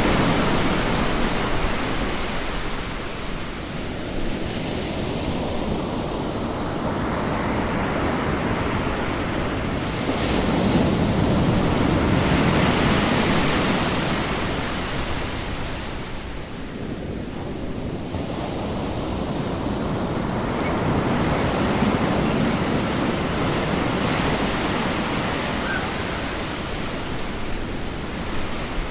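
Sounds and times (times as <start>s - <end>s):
ocean waves washing in: 0.0s - 28.9s.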